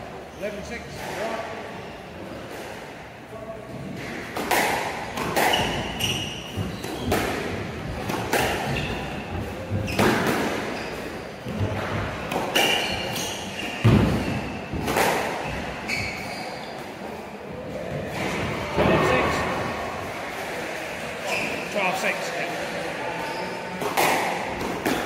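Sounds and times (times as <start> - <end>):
squash ball smacking: 4.0 - 10.8, 13.8 - 15.7, 23.8 - 25.0
shoes squeaking on wooden floor: 5.4 - 17.0, 21.2 - 21.8.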